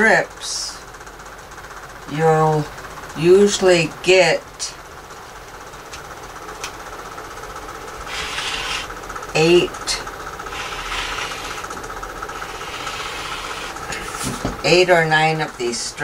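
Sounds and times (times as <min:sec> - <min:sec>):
steady background hum: 0:00.0 - 0:16.0
rotary cutter rasping through fabric: 0:08.0 - 0:09.0, 0:10.4 - 0:14.2.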